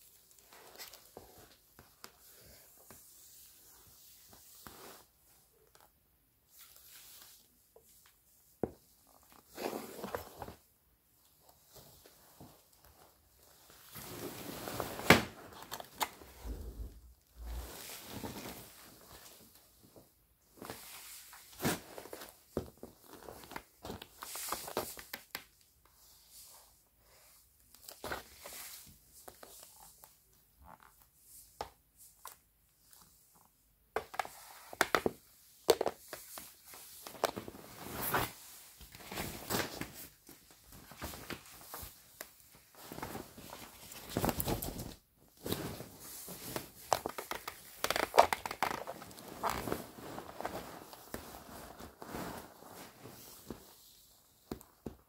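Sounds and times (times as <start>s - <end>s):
plastic sheeting crinkling: 36.2s - 54.1s.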